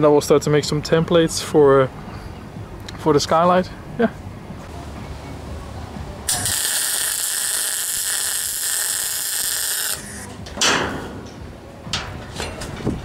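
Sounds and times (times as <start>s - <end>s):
welder arc crackling: 6.3s - 10.3s.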